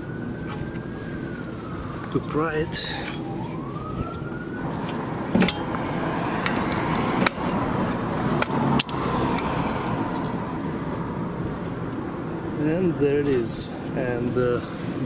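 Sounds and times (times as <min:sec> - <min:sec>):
distant siren wailing: 0:00.0 - 0:15.0
traffic noise: 0:00.0 - 0:15.0
metal clinks and knocks: 0:05.3 - 0:05.8.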